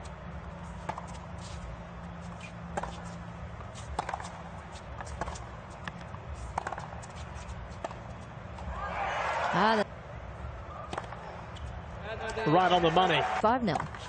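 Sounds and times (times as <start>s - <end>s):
low stadium hum: 0.0s - 14.0s
tennis ball bouncing: 0.8s - 1.5s, 2.3s - 8.7s, 10.9s - 11.7s
rackets striking tennis ball: 3.8s - 8.1s.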